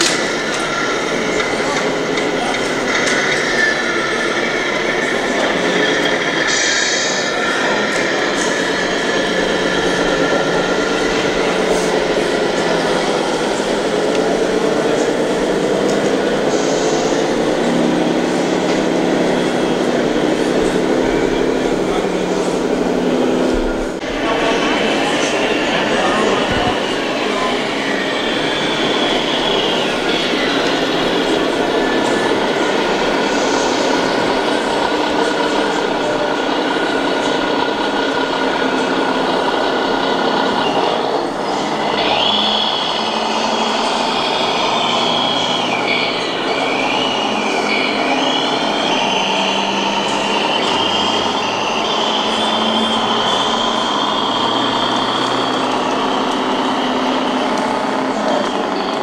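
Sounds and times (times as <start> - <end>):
hall hubbub: 0.0 - 59.0.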